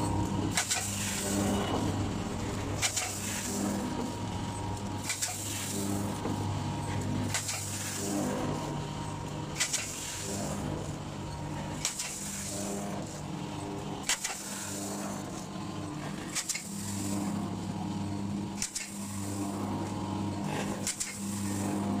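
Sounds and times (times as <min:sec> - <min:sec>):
packing machine motor hum: 0:00.0 - 0:22.0
sharp machine clicks: 0:00.5 - 0:01.1, 0:02.8 - 0:03.4, 0:05.0 - 0:05.6, 0:07.2 - 0:07.9, 0:09.5 - 0:10.0, 0:11.8 - 0:12.5, 0:14.0 - 0:14.6, 0:16.3 - 0:16.8, 0:18.6 - 0:19.1, 0:20.8 - 0:21.4.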